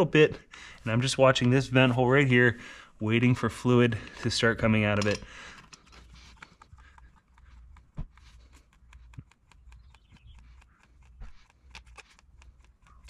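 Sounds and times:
hand pump clicking: 4.0s - 7.9s.

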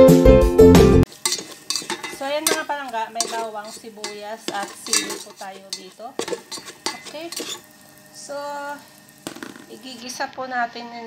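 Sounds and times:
spatula scraping metal pot: 1.1s - 7.9s.

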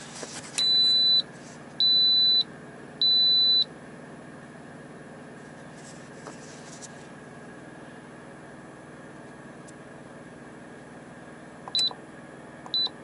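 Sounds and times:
pressure cooker beeping: 0.6s - 3.7s, 11.7s - 12.0s, 12.7s - 13.0s.

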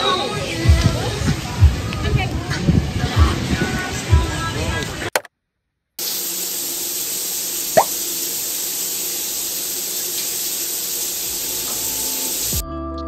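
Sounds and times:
water pouring from shower head: 6.0s - 12.6s.

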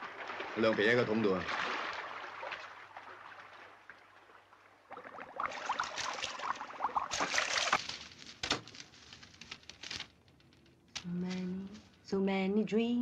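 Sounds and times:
cellophane crinkling: 7.2s - 12.1s.

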